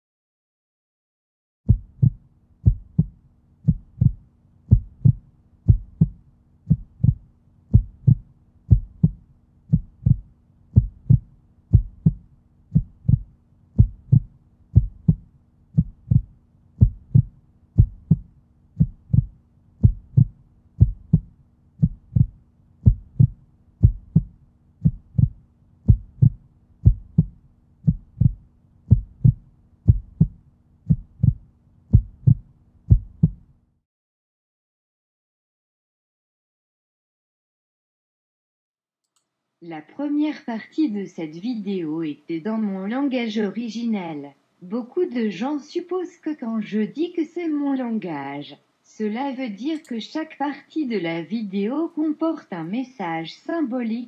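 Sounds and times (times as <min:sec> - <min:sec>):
deep heartbeat-like thumps: 0:01.7 - 0:33.5
faint steady hum: 0:01.7 - 0:33.8, 0:39.2 - 0:54.0.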